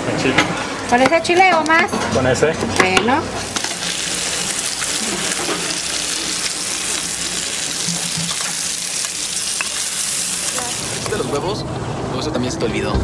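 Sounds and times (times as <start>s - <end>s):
food sizzling in a pan: 3.3s - 11.6s.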